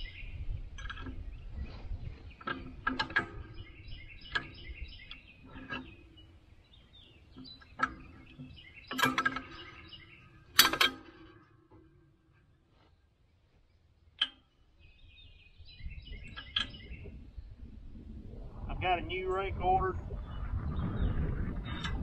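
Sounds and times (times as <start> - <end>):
birds chirping: 0.0 - 22.0
tools clanking on metal: 0.7 - 1.7, 2.3 - 12.6, 16.1 - 16.9.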